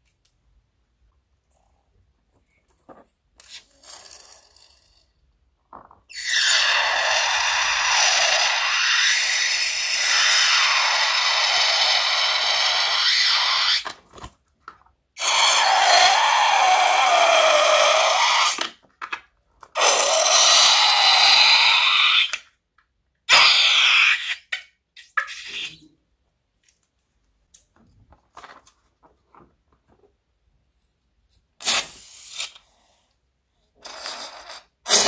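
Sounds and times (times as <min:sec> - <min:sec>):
balloon squealing: 0:06.1 - 0:13.9, 0:15.2 - 0:18.8, 0:19.8 - 0:22.4, 0:23.3 - 0:25.9, 0:31.6 - 0:32.6, 0:33.8 - 0:35.0.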